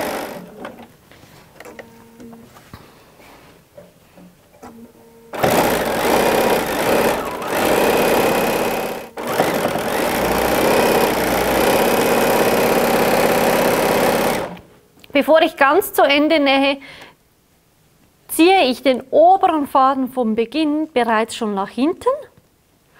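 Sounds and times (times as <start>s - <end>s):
sewing machine running: 0.0s - 0.5s, 5.3s - 14.7s.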